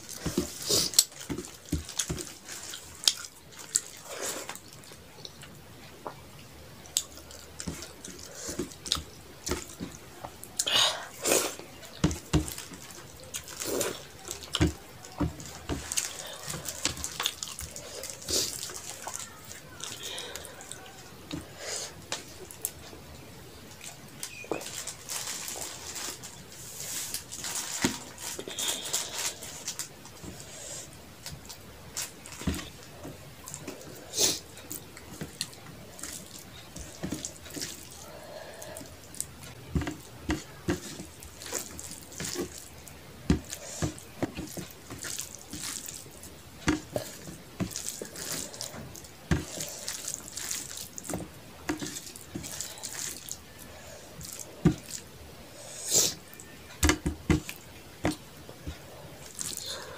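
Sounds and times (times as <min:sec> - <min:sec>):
fingers squishing rice: 0:00.0 - 0:06.2, 0:06.8 - 0:59.9
wet chewing smacks: 0:00.0 - 0:06.2, 0:06.8 - 0:25.0.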